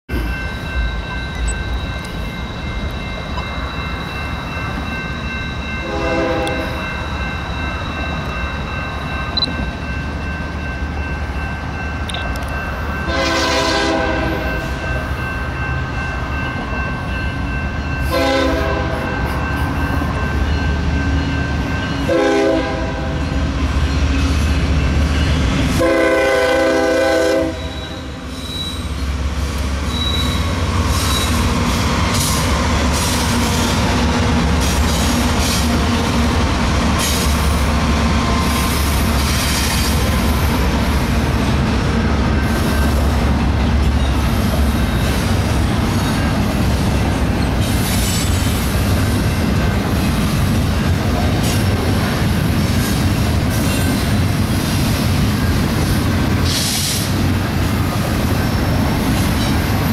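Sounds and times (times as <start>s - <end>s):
diesel locomotives rumbling: 0.1s - 59.9s
train air horn blasts: 5.8s - 6.8s, 13.1s - 14.8s, 18.1s - 19.3s, 22.1s - 23.2s, 25.7s - 28.8s.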